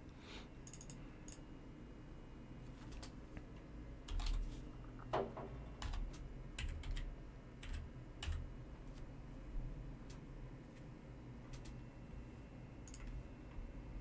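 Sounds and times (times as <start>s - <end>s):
keyboard typing: 0.7s - 1.4s, 2.8s - 3.2s, 4.1s - 5.2s, 5.8s - 8.5s, 11.5s - 11.8s, 12.9s - 13.2s.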